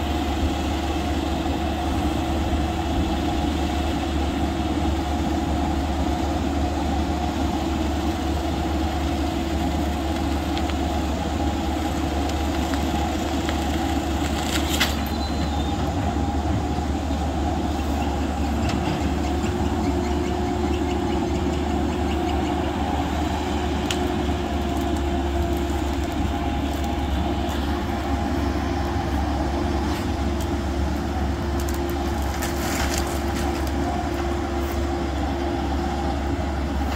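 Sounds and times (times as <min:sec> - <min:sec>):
diesel engine with whine: 0:00.0 - 0:36.9
sharp wood cracks: 0:10.0 - 0:11.0, 0:11.7 - 0:15.2, 0:31.5 - 0:33.8.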